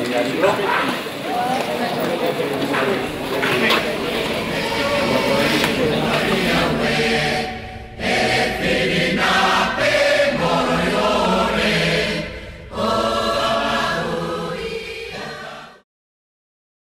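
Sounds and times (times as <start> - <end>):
group of voices singing: 2.6 - 15.8.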